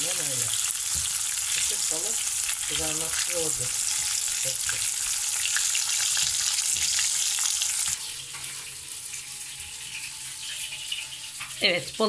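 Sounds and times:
utensils clicking on a pan: 0:00.0 - 0:08.6
fish sizzling in hot oil: 0:00.0 - 0:12.0.

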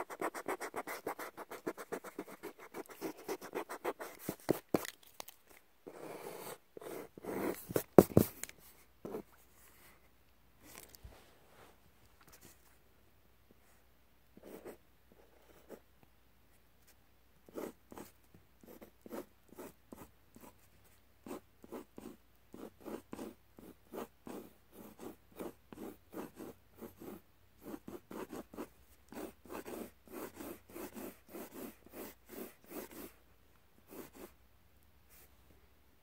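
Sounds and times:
pencil scratching on paper: 0:00.0 - 0:04.8, 0:05.9 - 0:08.3, 0:17.5 - 0:20.6, 0:21.2 - 0:33.2, 0:33.9 - 0:34.4.

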